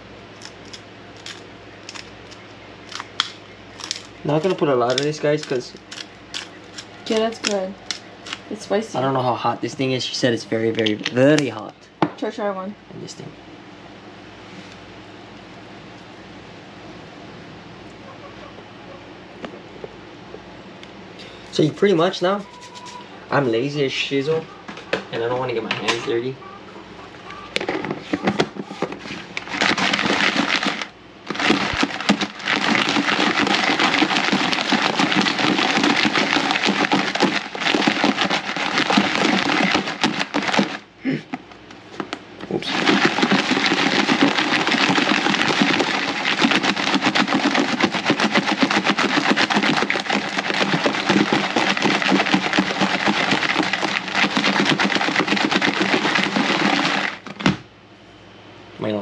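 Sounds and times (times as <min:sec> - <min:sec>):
crabs rattling in shaken container: 0:03.8 - 0:08.6, 0:27.6 - 0:40.9, 0:42.6 - 0:57.5.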